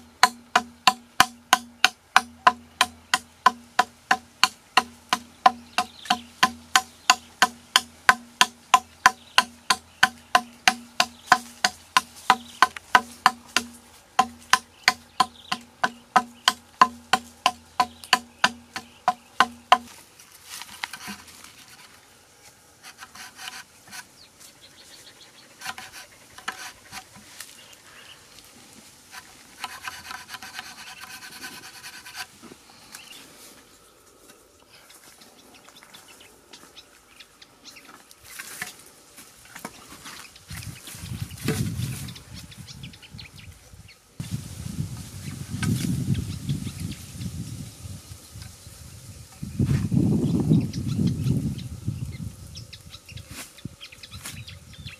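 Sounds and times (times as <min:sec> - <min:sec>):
hatchet chopping bamboo: 0:00.0 - 0:20.0, 0:25.6 - 0:27.2, 0:29.1 - 0:32.3
metal point scraping bamboo: 0:00.0 - 0:22.0, 0:22.8 - 0:28.0, 0:29.1 - 0:33.0.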